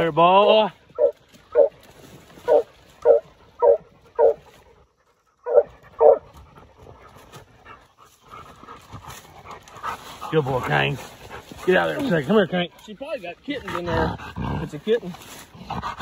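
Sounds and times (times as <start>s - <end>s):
dog barking: 1.0s - 1.7s, 2.5s - 4.4s, 5.4s - 6.3s.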